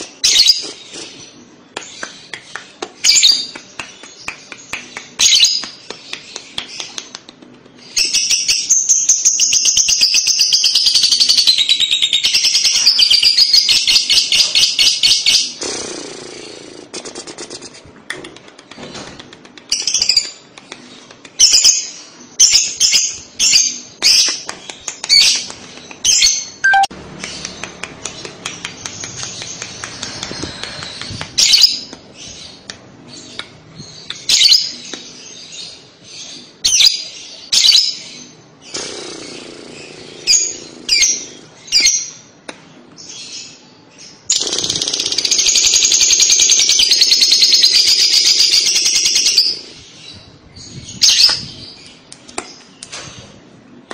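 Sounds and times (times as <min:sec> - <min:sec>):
lovebird rapid chatter: 0:24.1 - 0:31.9, 0:44.3 - 0:47.7
lovebird chirps: 0:26.0 - 0:27.6.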